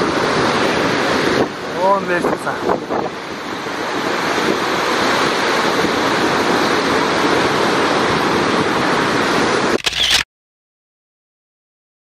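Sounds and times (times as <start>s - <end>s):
waterfall and river rushing: 0.0s - 10.2s.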